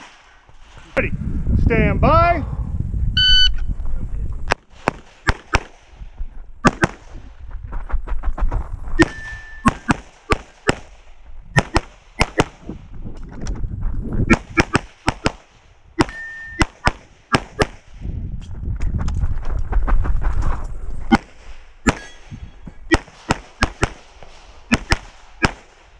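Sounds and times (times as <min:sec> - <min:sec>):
rapid handgun shots: 0:04.5 - 0:06.0, 0:06.6 - 0:07.2, 0:09.0 - 0:12.7, 0:14.3 - 0:18.0, 0:21.1 - 0:22.3, 0:22.9 - 0:25.9
steel target ringing: 0:09.0 - 0:09.9, 0:16.0 - 0:16.6, 0:21.8 - 0:22.6.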